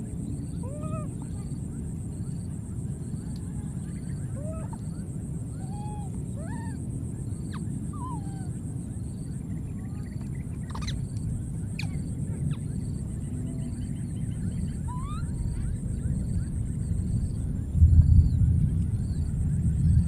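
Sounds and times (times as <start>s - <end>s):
steady low rumble: 0.0s - 20.0s
baby monkeys cooing and squealing: 0.5s - 1.6s, 4.0s - 6.8s, 7.4s - 8.6s, 10.6s - 11.2s, 11.8s - 12.7s, 14.6s - 15.9s
baby monkeys shrieking: 0.6s - 1.6s, 4.4s - 6.8s, 7.4s - 8.6s, 10.7s - 11.2s, 14.8s - 15.8s.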